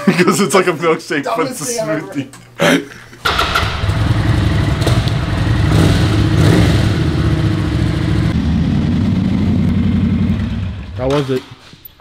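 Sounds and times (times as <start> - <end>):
motorcycle engine at low revs: 3.2 - 11.1.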